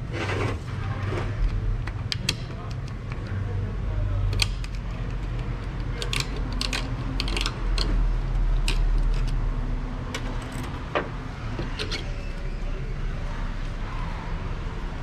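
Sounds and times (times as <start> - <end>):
metal clutch plates clinking: 4.3 - 9.4, 10.1 - 12.4.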